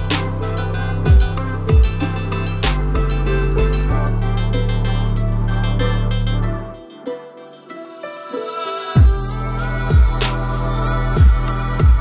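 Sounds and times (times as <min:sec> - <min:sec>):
background music with steady beat: 0:00.0 - 0:12.0
deep kick drum hits: 0:01.1 - 0:02.0, 0:09.0 - 0:09.2, 0:11.2 - 0:12.0.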